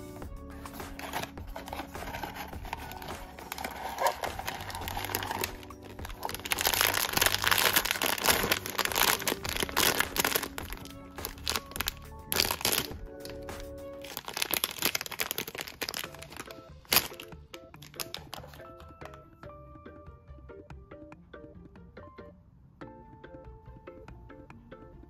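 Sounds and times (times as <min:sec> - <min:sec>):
background music: 0:00.0 - 0:25.0
plastic bag crinkling: 0:00.6 - 0:18.6.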